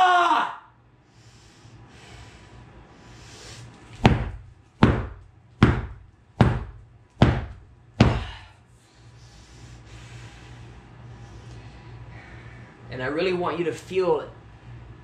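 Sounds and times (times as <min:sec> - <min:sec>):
foam bat whacking a futon: 0:04.0 - 0:08.4.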